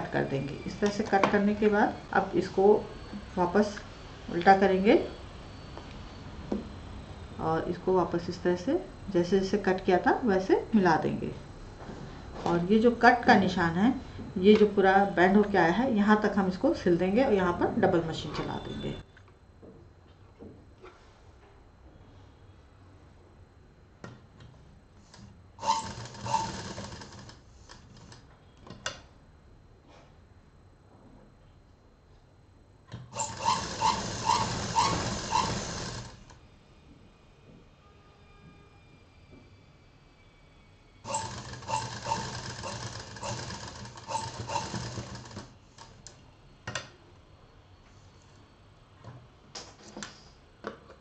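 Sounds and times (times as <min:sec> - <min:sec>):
sewing machine stitching: 0:25.6 - 0:28.2, 0:33.1 - 0:36.3, 0:41.1 - 0:46.0
sharp clicks from sewing machine: 0:41.1 - 0:45.9.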